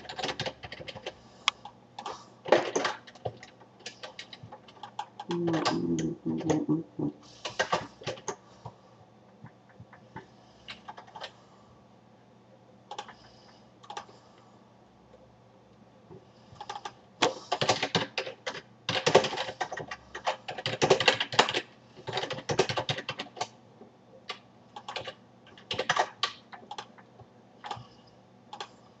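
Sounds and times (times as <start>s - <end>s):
computer keyboard typing: 0.0s - 6.7s, 7.4s - 8.4s, 9.4s - 11.4s, 12.9s - 14.1s, 16.6s - 23.6s, 24.2s - 27.9s, 28.5s - 28.8s.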